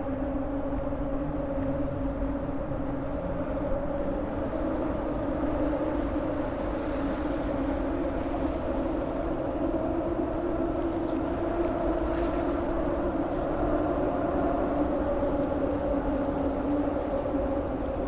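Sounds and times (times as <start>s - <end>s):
wind rumbling on microphone: 0.0s - 18.0s.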